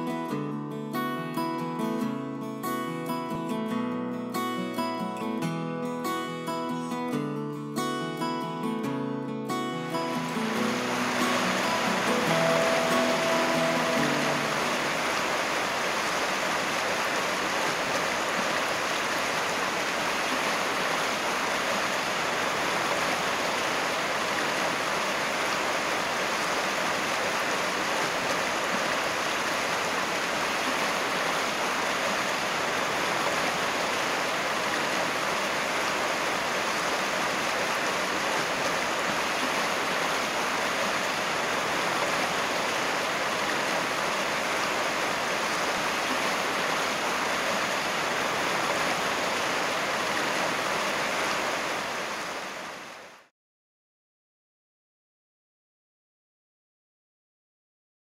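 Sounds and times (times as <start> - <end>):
stream rushing over stones: 9.5 - 53.3.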